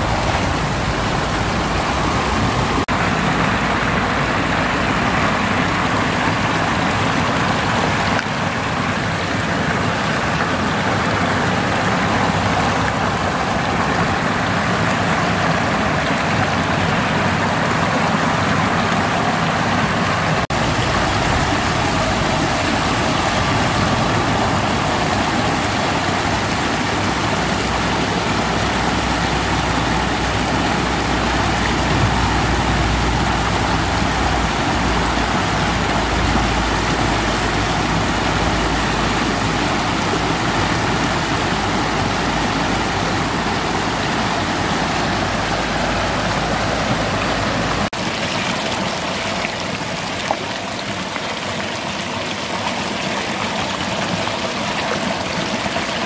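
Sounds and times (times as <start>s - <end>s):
water rushing over weir: 0.0s - 56.0s
deep rumble: 20.5s - 25.8s.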